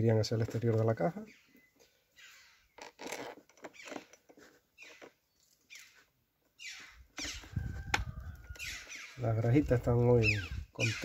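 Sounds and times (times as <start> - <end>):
crows calling: 6.6 - 9.3.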